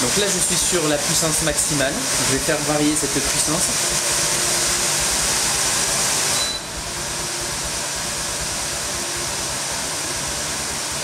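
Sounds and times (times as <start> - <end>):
range hood fan running: 0.0 - 11.0
short high beep: 6.3 - 6.8.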